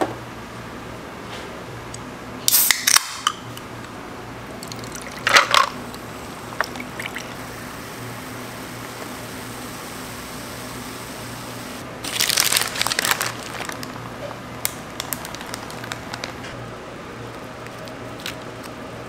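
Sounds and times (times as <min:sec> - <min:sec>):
can clatter and hiss: 0:02.5 - 0:03.3, 0:05.2 - 0:05.8
drink fizzing: 0:04.5 - 0:10.9.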